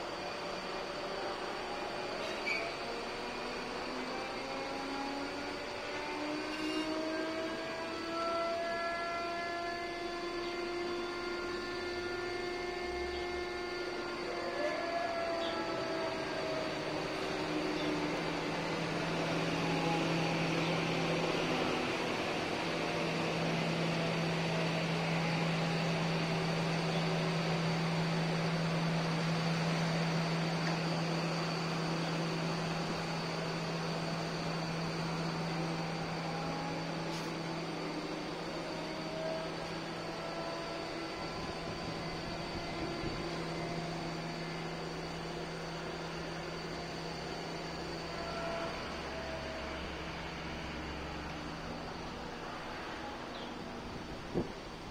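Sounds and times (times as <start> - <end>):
drilling rig machine hum: 0.0 - 54.9
faint short whines: 1.7 - 2.9, 6.4 - 10.0, 14.1 - 18.2, 47.6 - 54.6.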